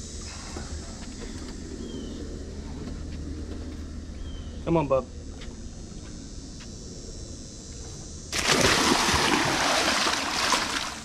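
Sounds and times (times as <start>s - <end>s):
alligator splashing in water: 8.3s - 11.0s.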